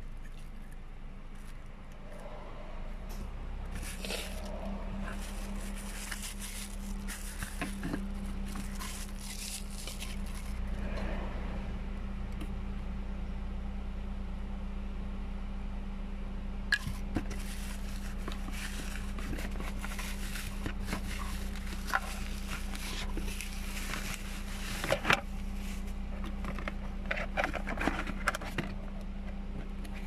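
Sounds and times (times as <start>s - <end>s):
steady low hum: 0.0s - 30.0s
bubble wrap crinkling: 3.8s - 10.7s, 16.8s - 26.5s.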